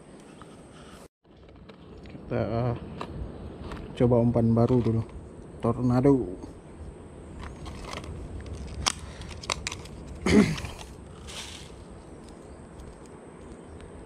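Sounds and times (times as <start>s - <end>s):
plastic packaging clicks and crackles: 7.4s - 10.9s.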